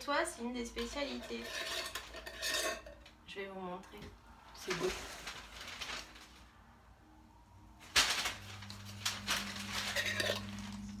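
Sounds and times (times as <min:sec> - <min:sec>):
metal scraping against glass: 0:00.9 - 0:03.1, 0:09.5 - 0:10.9.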